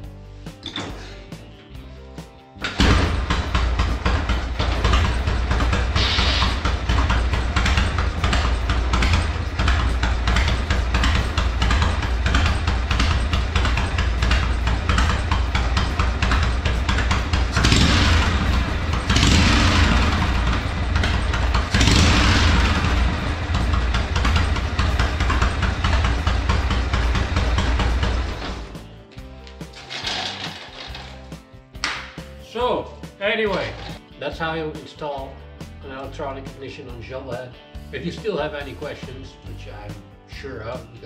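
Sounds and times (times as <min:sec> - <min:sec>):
motorcycle engine idling and revving: 0:02.6 - 0:31.6, 0:33.4 - 0:34.1.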